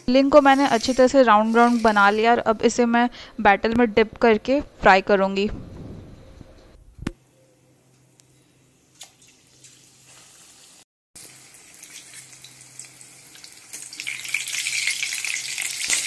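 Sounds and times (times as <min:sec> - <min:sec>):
food sizzling in hot oil: 0:00.2 - 0:02.3, 0:09.5 - 0:16.0.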